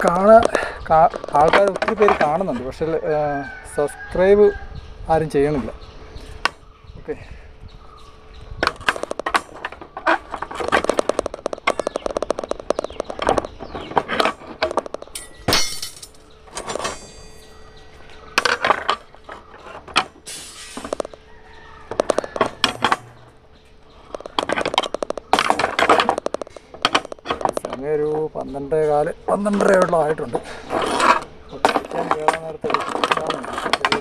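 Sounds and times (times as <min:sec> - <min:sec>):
steel bars clinking and scraping: 0:13.8 - 0:21.0, 0:22.3 - 0:23.4, 0:29.4 - 0:34.0.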